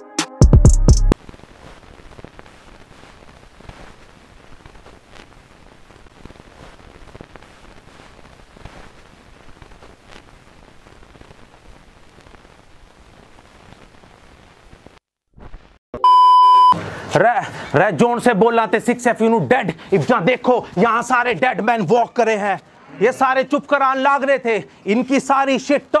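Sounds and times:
faint static hiss: 0:01.2 - 0:15.8
soft crackles: 0:01.2 - 0:15.8.

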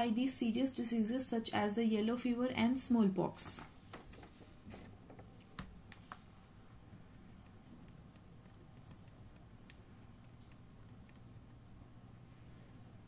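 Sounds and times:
low steady hum: 0:00.0 - 0:13.0
mouse scroll wheel ticking: 0:07.0 - 0:11.7
computer mouse clicks: 0:07.1 - 0:11.7.

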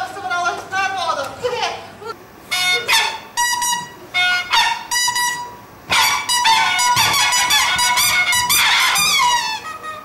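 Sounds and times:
handheld squeakers tooting: 0:02.5 - 0:10.0.

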